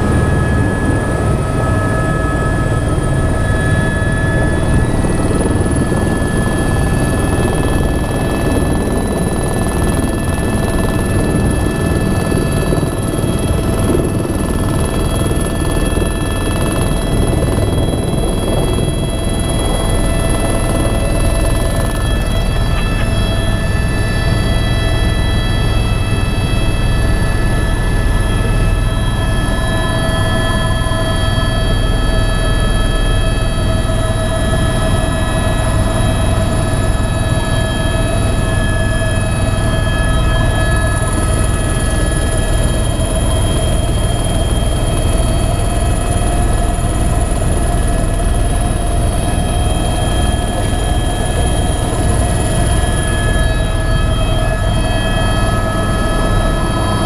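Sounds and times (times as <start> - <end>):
helicopter engine and rotor drone: 0.0 - 57.0
high turbine whine: 0.0 - 57.0.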